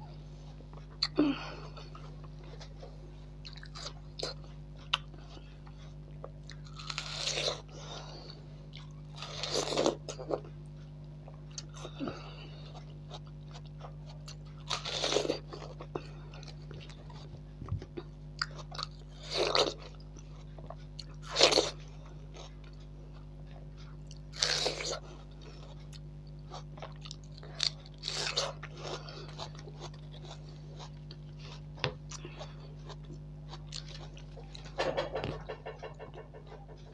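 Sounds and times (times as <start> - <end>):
soft chewing and mouth clicks: 0.7 - 7.6, 12.6 - 36.9
low hum: 25.0 - 36.9.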